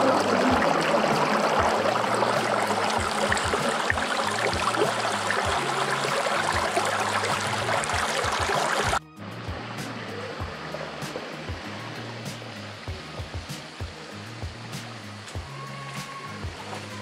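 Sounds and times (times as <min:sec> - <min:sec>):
river rushing over rocks: 0:00.0 - 0:09.0.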